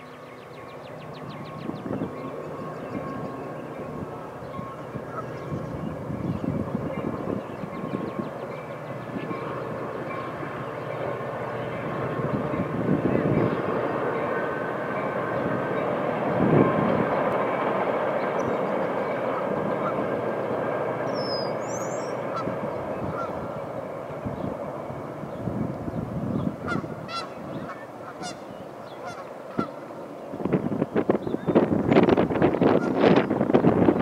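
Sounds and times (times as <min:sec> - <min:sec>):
train rumbling over bridge: 0:00.0 - 0:34.0
waterfowl calls: 0:04.5 - 0:05.5, 0:21.2 - 0:22.5, 0:23.1 - 0:23.5, 0:26.6 - 0:29.9.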